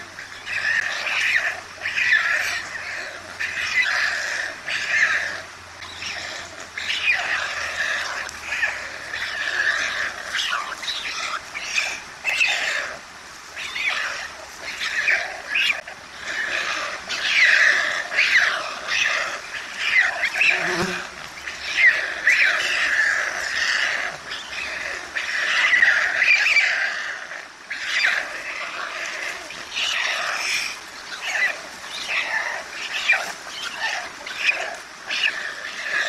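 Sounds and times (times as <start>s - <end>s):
nestlings begging calls: 13.6s - 26.8s.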